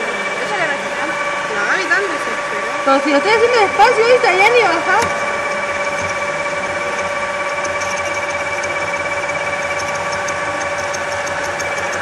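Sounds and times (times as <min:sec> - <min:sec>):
drill press boring steel: 0:03.1 - 0:12.0.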